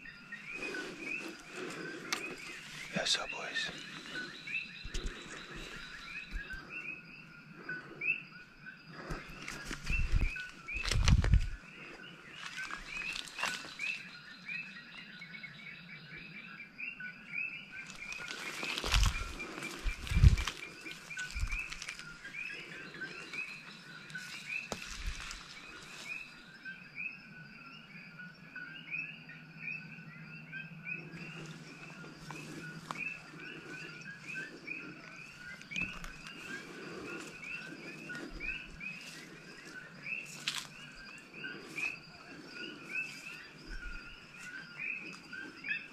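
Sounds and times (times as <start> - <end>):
rustling through brush: 0.0 - 6.9, 8.9 - 14.1, 17.8 - 26.4, 31.0 - 45.7
frogs calling: 0.0 - 45.9.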